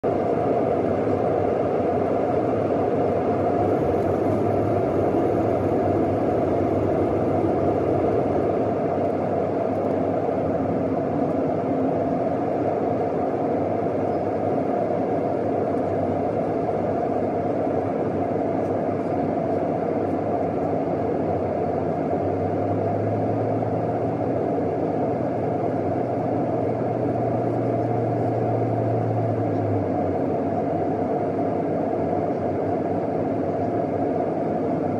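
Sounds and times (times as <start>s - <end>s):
airplane cabin engine noise: 0.0s - 34.9s
low hum: 0.0s - 34.9s.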